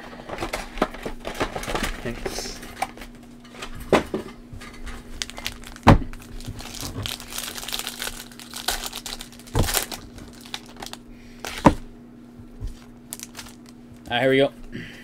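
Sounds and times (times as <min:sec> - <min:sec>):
foil wrapper tearing and crinkling: 0:05.1 - 0:11.7, 0:12.8 - 0:13.8.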